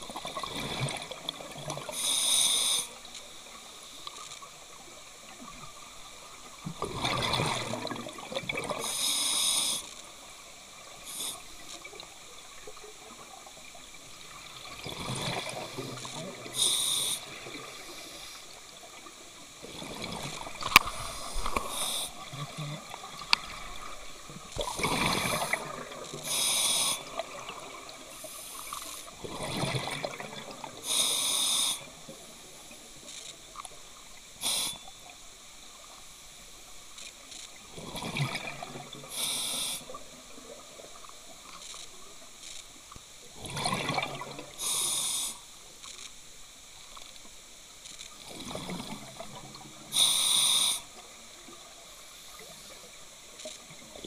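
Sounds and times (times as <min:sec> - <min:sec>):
regulator breath hiss: 0:01.8 - 0:03.0, 0:08.8 - 0:10.0, 0:10.9 - 0:11.7, 0:15.7 - 0:18.6, 0:20.8 - 0:22.3, 0:24.7 - 0:27.2, 0:28.1 - 0:29.1, 0:30.8 - 0:32.0, 0:34.4 - 0:34.9, 0:39.1 - 0:40.0, 0:44.6 - 0:45.6, 0:49.9 - 0:51.0
exhaled bubbles gurgling: 0:06.5 - 0:09.0, 0:10.8 - 0:30.8, 0:37.7 - 0:39.2, 0:43.4 - 0:44.8, 0:48.2 - 0:49.9.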